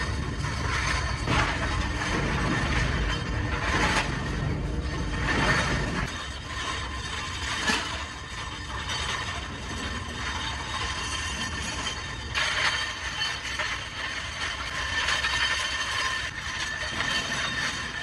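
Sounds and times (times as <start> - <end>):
low machinery rumble: 0.0 - 18.0
metal blades clattering in wheelbarrow: 0.0 - 18.0.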